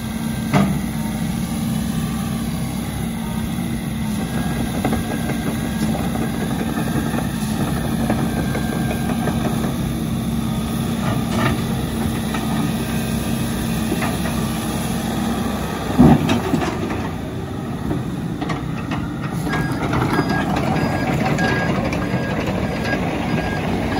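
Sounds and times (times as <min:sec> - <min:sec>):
excavator diesel engine running: 0:00.0 - 0:23.9
beeping alarm: 0:19.4 - 0:23.9.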